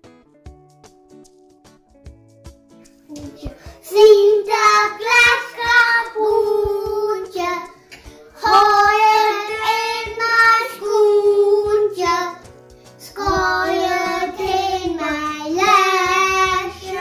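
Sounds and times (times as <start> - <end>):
children singing: 3.7 - 12.4, 13.0 - 17.0.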